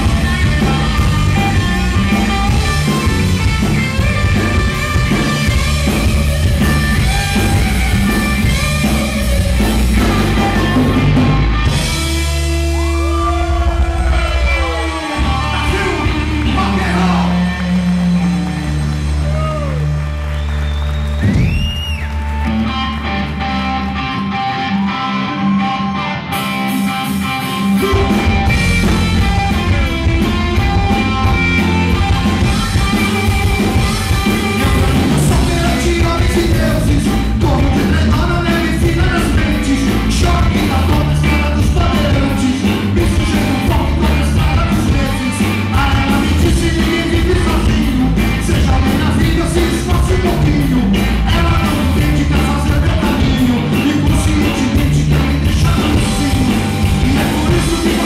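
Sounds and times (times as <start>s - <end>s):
man singing: 0.0s - 4.0s, 6.9s - 11.5s, 12.1s - 18.4s, 27.7s - 29.9s, 33.8s - 58.0s
rock band playing: 0.0s - 58.0s.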